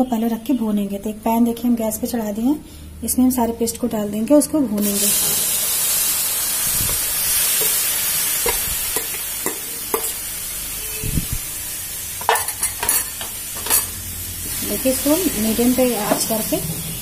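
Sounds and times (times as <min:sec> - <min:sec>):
paste sizzling in hot pan: 0:04.8 - 0:17.0
steel spoon clinking and scraping: 0:07.6 - 0:10.2, 0:12.2 - 0:14.0.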